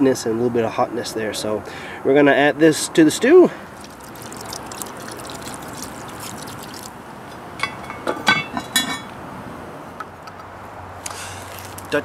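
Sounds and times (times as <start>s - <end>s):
beer pouring and splashing: 3.6s - 7.1s
metal lid clanking on pot: 7.6s - 9.1s.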